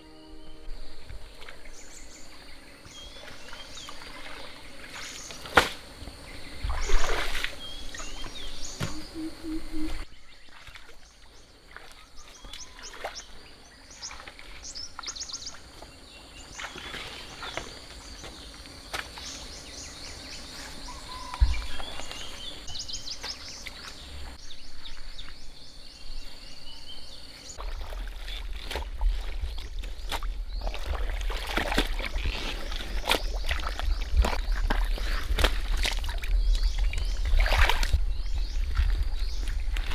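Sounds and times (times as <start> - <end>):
birds chirping: 0.0 - 5.5, 6.1 - 28.4
heavy thump: 8.8 - 9.2
high-pitched drone: 8.8 - 10.0.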